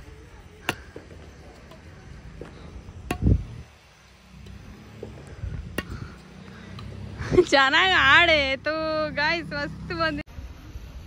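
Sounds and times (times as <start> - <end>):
low rumble: 1.9 - 10.1
racket striking shuttlecock: 3.0 - 3.6, 4.4 - 7.1.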